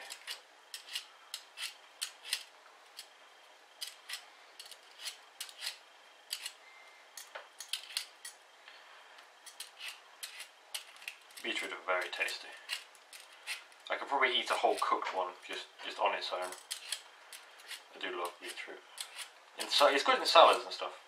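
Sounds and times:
peeler scraping beetroot: 0.0 - 3.2, 3.8 - 6.6, 7.6 - 8.3, 9.4 - 15.6, 16.3 - 20.6.

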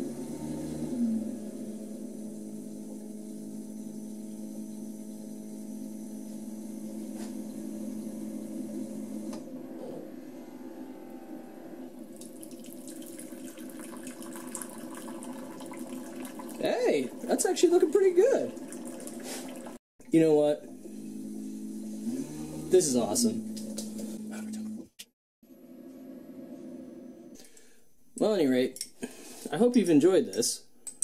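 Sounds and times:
coffee brewer pump hum: 0.0 - 24.9
hot water splashing into cup: 12.2 - 16.7, 18.3 - 19.8.

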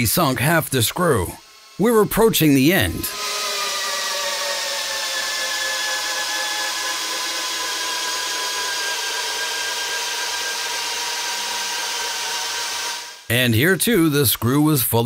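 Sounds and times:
drill driving screw into wood: 3.1 - 13.2.

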